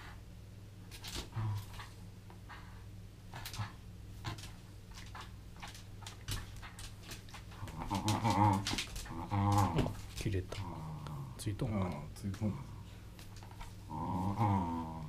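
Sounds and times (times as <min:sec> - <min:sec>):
dog growling: 0:01.1 - 0:11.4, 0:13.5 - 0:15.0.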